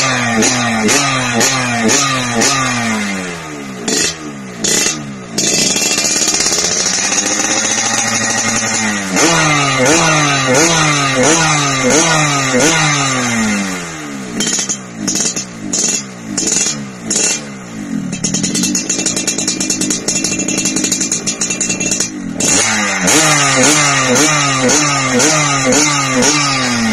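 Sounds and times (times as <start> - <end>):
motorcycle engine revving: 0.0 - 26.9
engine crackling popping idle: 3.9 - 10.0, 18.0 - 26.4.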